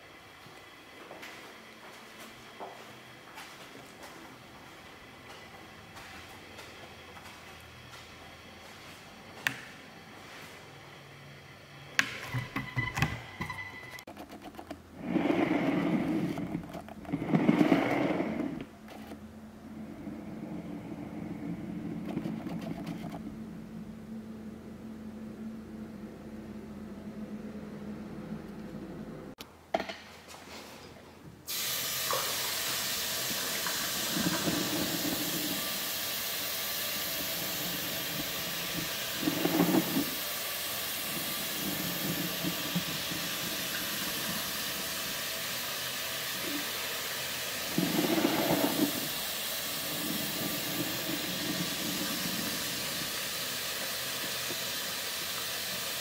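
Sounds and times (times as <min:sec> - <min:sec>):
low hum: 0:18.1 - 0:29.4
faucet water rushing: 0:31.5 - 0:56.0.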